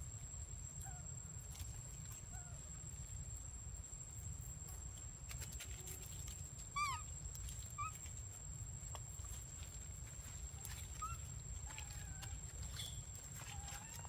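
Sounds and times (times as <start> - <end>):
high animal calls: 6.8 - 7.1.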